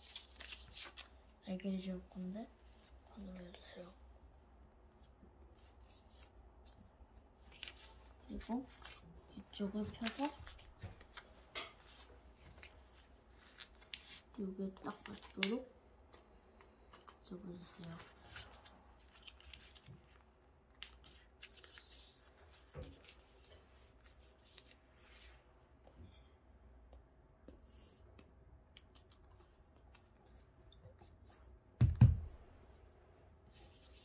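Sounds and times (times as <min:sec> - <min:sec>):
paper rustling and scraping: 0:00.0 - 0:01.2.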